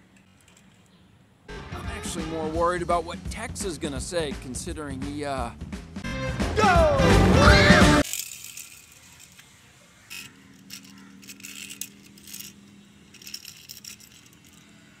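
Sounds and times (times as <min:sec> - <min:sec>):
toy car wheels scraping on concrete: 0:07.9 - 0:14.8.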